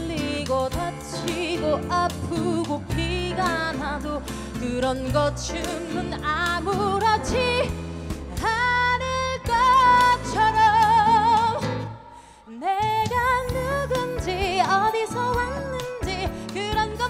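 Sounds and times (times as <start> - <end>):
instrumental accompaniment: 0.0 - 17.0
woman singing with vibrato: 0.0 - 17.0.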